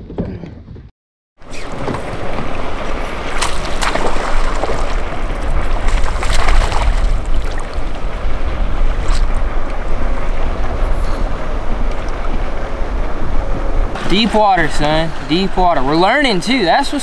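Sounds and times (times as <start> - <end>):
wind rumble on microphone: 0.0 - 17.0
fish splashing at water surface: 1.4 - 7.9.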